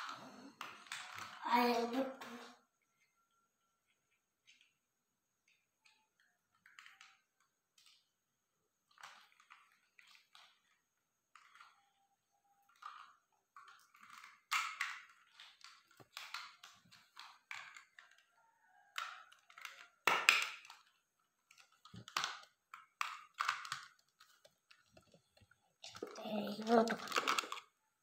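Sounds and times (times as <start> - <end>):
plastic toy blocks clicking: 0.0 - 1.4, 5.4 - 8.2, 8.8 - 11.9, 12.6 - 18.3, 18.9 - 27.8.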